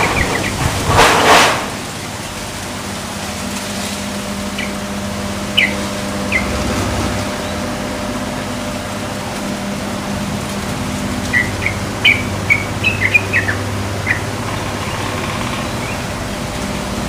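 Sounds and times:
background hiss and hum: 0.0s - 17.0s
rushing burst of noise: 0.0s - 17.0s
bird chirping faintly: 5.5s - 6.6s, 11.2s - 16.1s.

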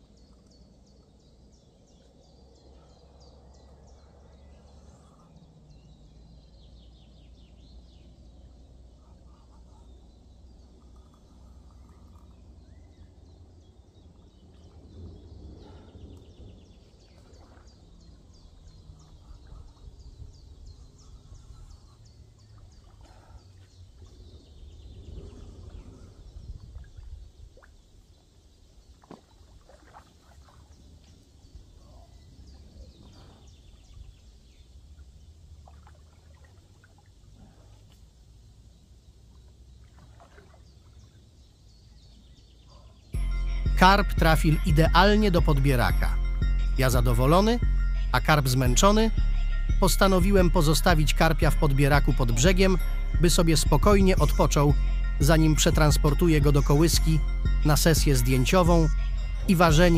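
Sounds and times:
small birds chirping: 0.0s - 35.7s, 36.7s - 59.9s
steady low rumble: 43.2s - 59.9s.

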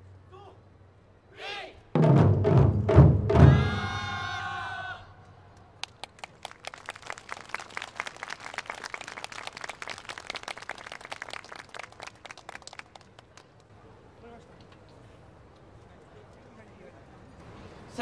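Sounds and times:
audience applause: 5.8s - 13.5s.

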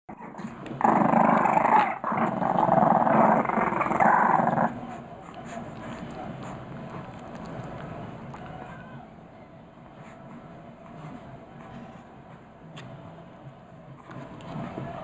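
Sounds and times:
puppies growling: 0.1s - 8.6s.

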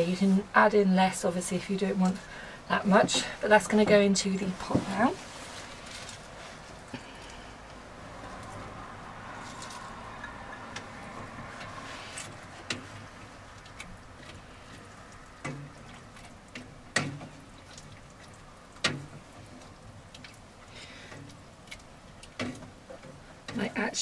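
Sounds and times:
soft wet churning: 0.0s - 24.0s.

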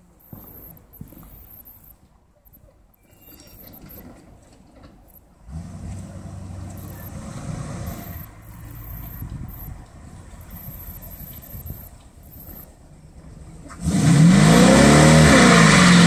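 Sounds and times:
car engine low rumble: 3.6s - 16.0s.

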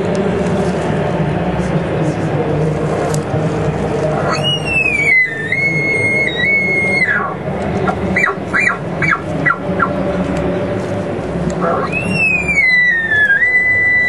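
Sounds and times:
elk call whistle: 8.2s - 9.9s, 11.6s - 14.0s.

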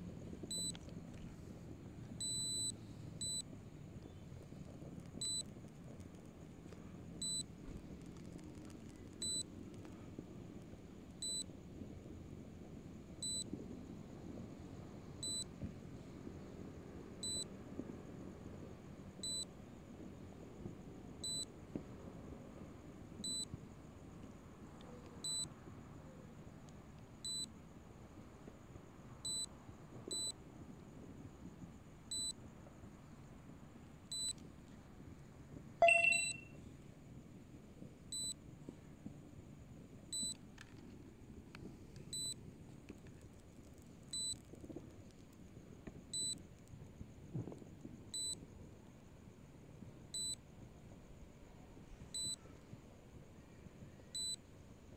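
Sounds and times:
brief electronic chime: 35.8s - 36.5s
short high electronic beeps: 35.8s - 36.5s.

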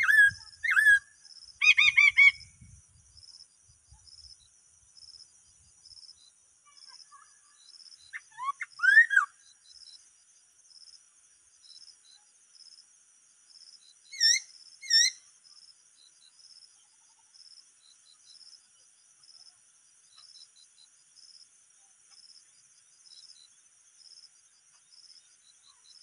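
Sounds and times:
songbird whistling: 0.0s - 2.5s, 8.1s - 9.4s, 14.1s - 15.2s
insects chorus: 0.0s - 26.0s.

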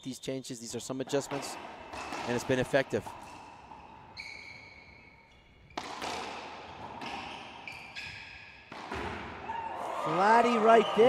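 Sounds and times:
shoes squeaking on court floor: 1.2s - 9.4s
racquetball hits: 1.3s - 4.4s, 5.6s - 9.7s.

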